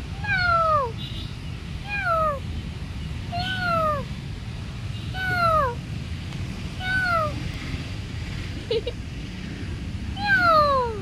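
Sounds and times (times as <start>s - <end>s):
kitten meowing: 1.9s - 2.4s, 6.8s - 7.4s.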